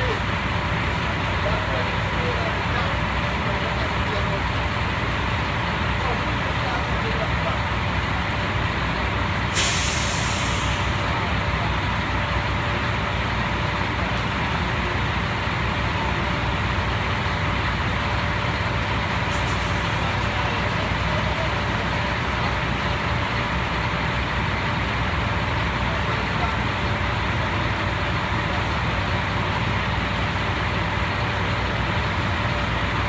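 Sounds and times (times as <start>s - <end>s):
concrete mixer truck rumbling: 0.0s - 33.0s
brief hiss: 9.6s - 11.0s.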